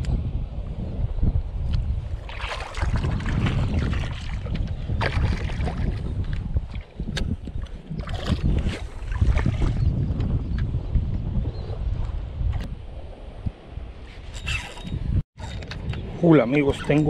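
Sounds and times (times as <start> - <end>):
wind buffeting microphone: 0.0 - 17.0
water sloshing and splashing: 2.1 - 9.9.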